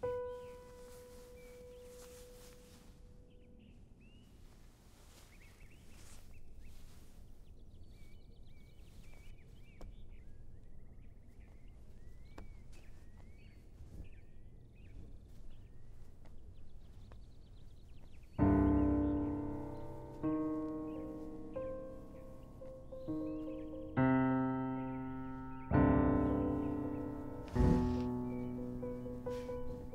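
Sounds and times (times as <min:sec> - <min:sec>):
faint bird chirps: 0:00.0 - 0:29.9
piano chord ringing: 0:18.4 - 0:29.9.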